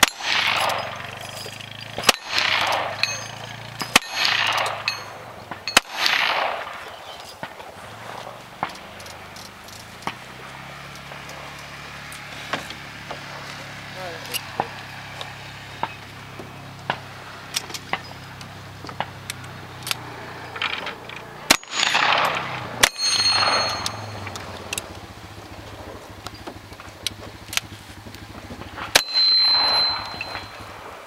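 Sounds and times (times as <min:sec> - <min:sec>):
gunshots with echo: 0:00.0 - 0:01.2, 0:02.0 - 0:09.0, 0:21.5 - 0:24.6
steel targets ringing: 0:00.0 - 0:12.1, 0:17.8 - 0:19.2, 0:20.4 - 0:26.4, 0:28.6 - 0:31.0.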